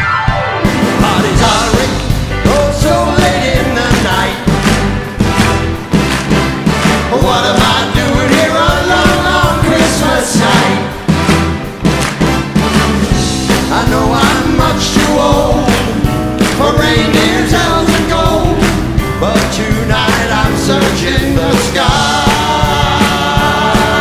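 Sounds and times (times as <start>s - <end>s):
live band and orchestra: 0.0s - 24.0s
steady drum beat: 0.3s - 24.0s
men singing rock and roll song: 0.9s - 4.6s, 7.1s - 11.0s, 13.5s - 24.0s.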